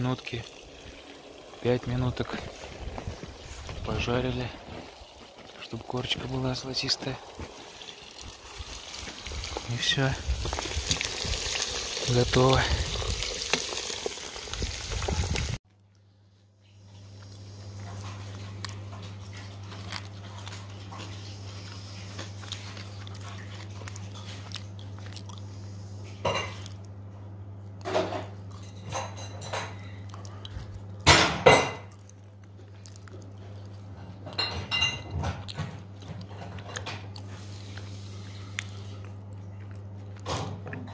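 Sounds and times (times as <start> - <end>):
chewing crisp fries: 0.4 - 16.1, 17.0 - 27.0, 29.8 - 31.1, 31.9 - 34.3, 35.3 - 40.9.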